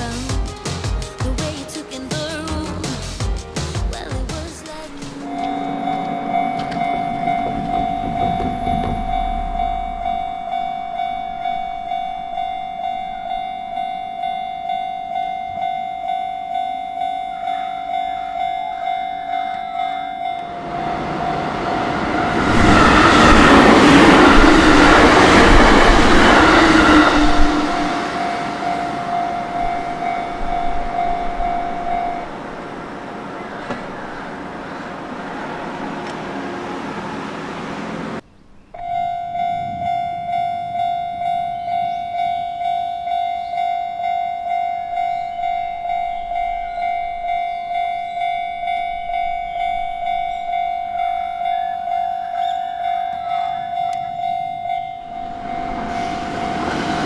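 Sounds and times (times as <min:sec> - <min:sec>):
level crossing bell ringing: 0:05.2 - 0:22.4, 0:26.5 - 0:32.8, 0:38.8 - 0:57.0.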